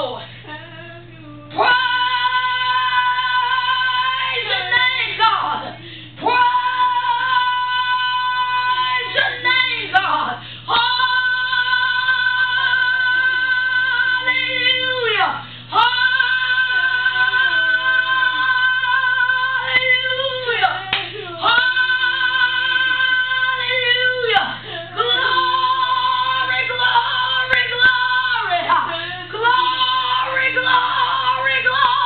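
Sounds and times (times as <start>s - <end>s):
woman singing high held notes: 0.0s - 32.0s
quiet wavering voice: 24.3s - 27.3s.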